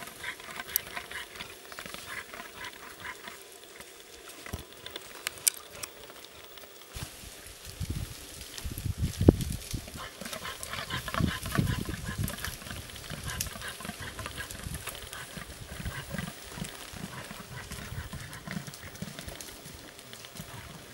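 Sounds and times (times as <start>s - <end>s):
caribou grunting: 0.0s - 3.8s, 9.9s - 20.9s.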